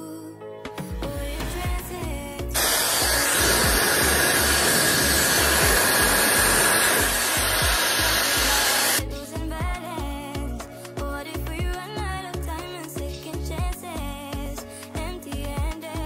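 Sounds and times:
background music with steady beat: 0.0s - 16.0s
hair dryer blowing: 2.5s - 9.0s.

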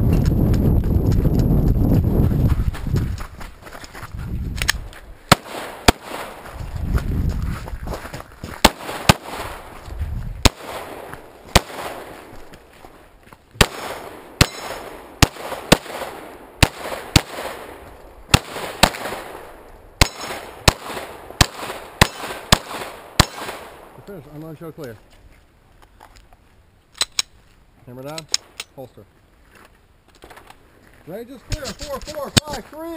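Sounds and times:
pistol shots echoing: 5.3s - 6.5s, 8.6s - 9.6s, 10.4s - 12.3s, 13.6s - 24.0s.

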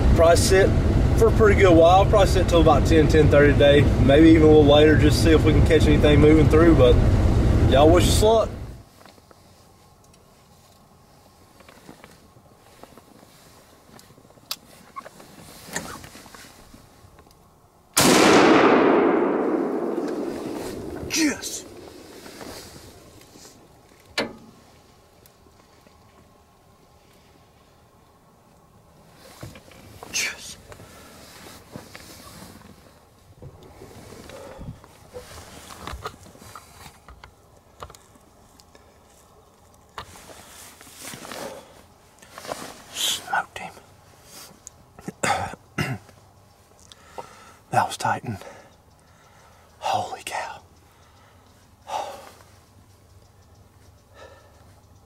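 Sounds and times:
faint rustles: 8.2s - 17.6s, 18.7s - 45.2s
loud gunshot with rolling echo: 18.0s - 22.1s.

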